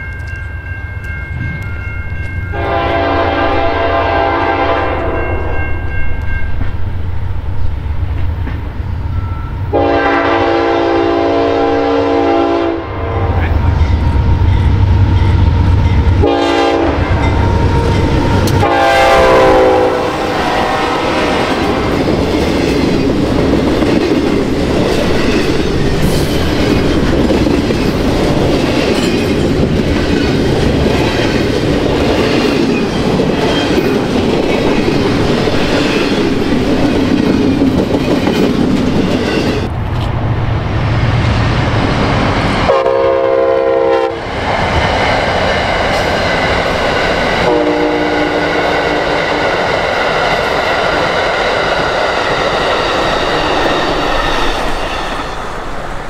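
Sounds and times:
train horn blasts: 2.5s - 5.6s, 9.7s - 14.8s, 15.4s - 21.9s, 42.7s - 44.2s, 47.4s - 49.4s
train wheels clattering on rails: 7.7s - 8.9s, 13.7s - 40.2s, 44.2s - 55.9s.

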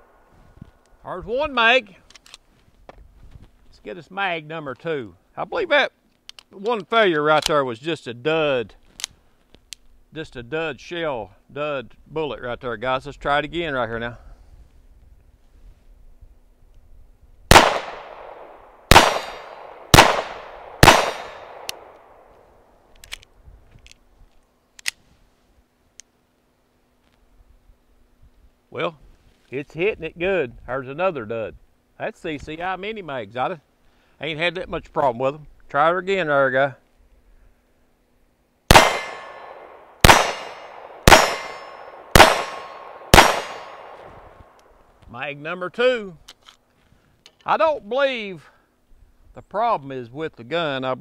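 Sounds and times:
pistol shots: 17.5s - 22.2s, 38.7s - 44.2s
metallic ring: 40.4s - 42.8s.

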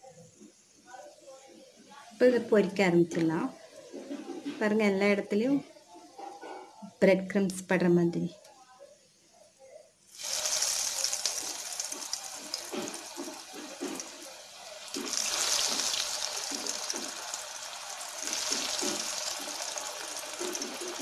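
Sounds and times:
food deep-frying in hot oil: 10.1s - 21.0s.

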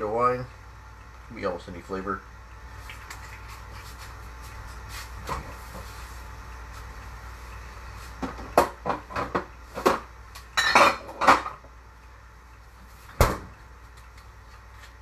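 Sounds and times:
dishes and bottles clinking: 10.6s - 11.4s.

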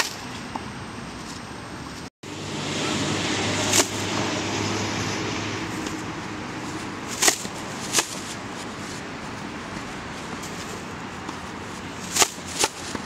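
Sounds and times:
wind noise on microphone: 0.0s - 13.0s
tennis racket hitting ball: 2.8s - 13.0s.

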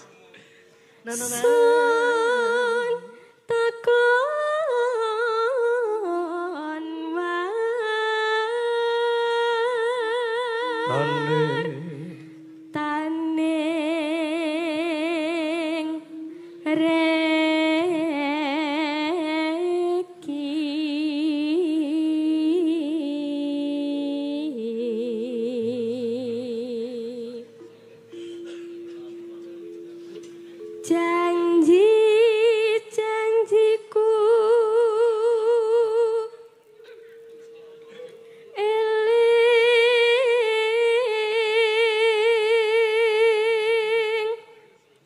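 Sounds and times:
person singing long note: 10.6s - 19.4s.

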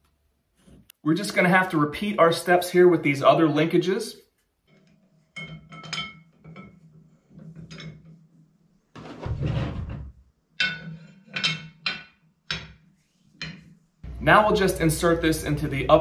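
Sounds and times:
metal clunk and scrape: 9.0s - 12.0s.

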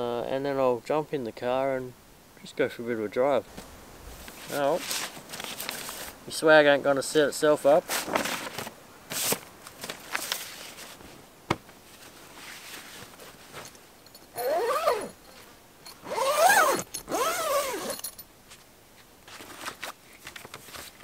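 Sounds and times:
zip pulled on canvas: 14.4s - 15.2s, 16.0s - 18.0s.

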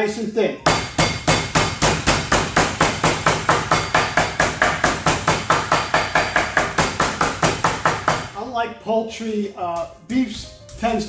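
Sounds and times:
mallet pounding meat: 0.7s - 8.4s.

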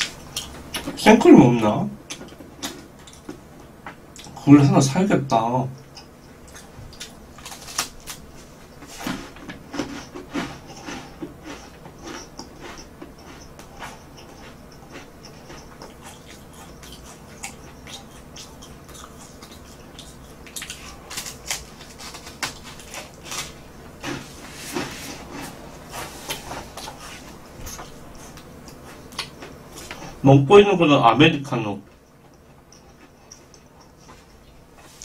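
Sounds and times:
soft chewing crackles: 0.0s - 35.0s
crunching bites of crispy bread: 6.5s - 8.3s.

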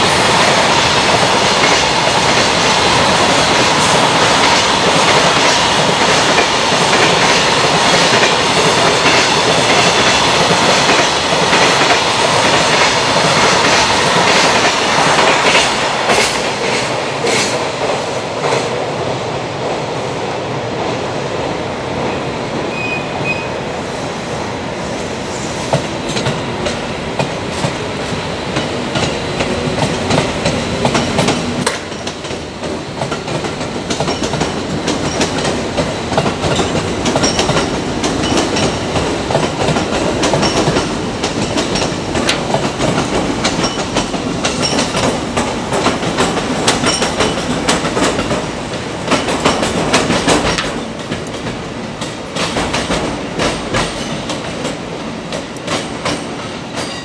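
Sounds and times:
train wheels clattering over rail joints: 0.2s - 18.7s, 25.7s - 57.0s.

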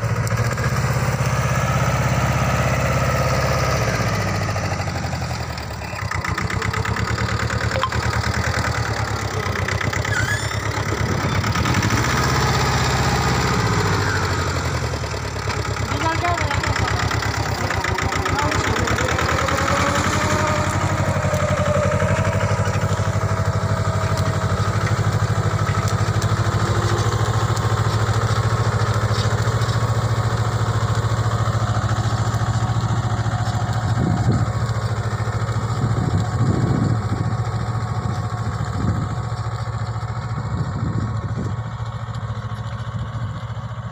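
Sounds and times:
tractor diesel engine running: 0.0s - 43.9s.

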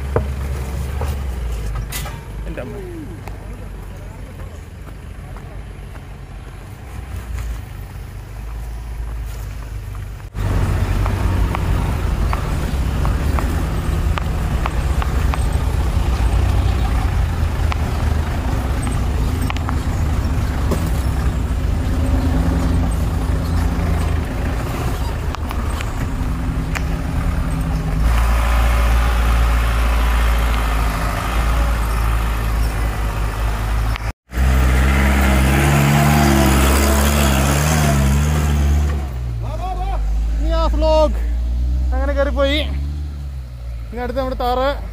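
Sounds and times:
suv engine running: 0.0s - 44.9s.

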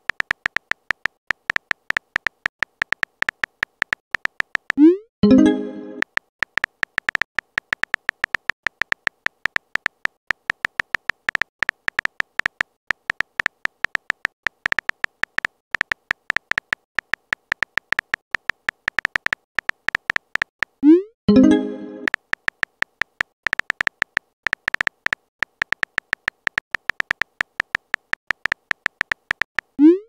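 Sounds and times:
keyboard typing clicks: 0.0s - 30.0s
message-sent chime: 5.2s - 6.0s, 21.3s - 22.1s.

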